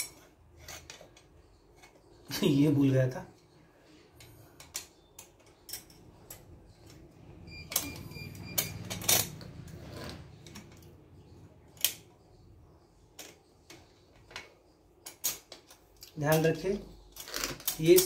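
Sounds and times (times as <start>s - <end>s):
small metal clicks and taps: 4.2s - 7.1s, 13.2s - 16.5s.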